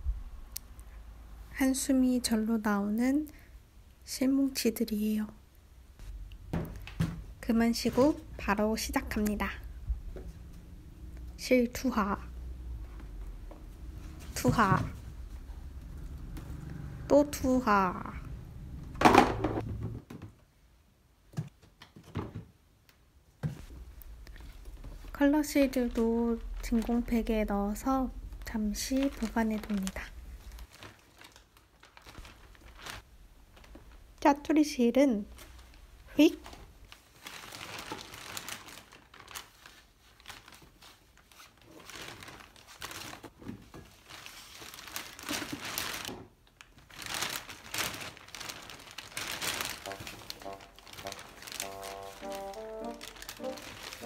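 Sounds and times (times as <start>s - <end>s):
plastic bins knocking: 6.4s - 8.4s, 18.9s - 20.5s
plastic bag crinkling: 24.1s - 34.2s, 35.3s - 54.0s.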